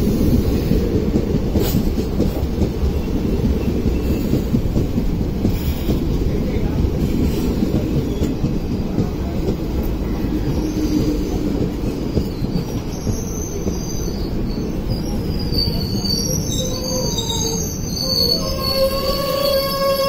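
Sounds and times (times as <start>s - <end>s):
train wheels rumbling on rail: 0.0s - 20.0s
high wheel squeal: 12.2s - 20.0s.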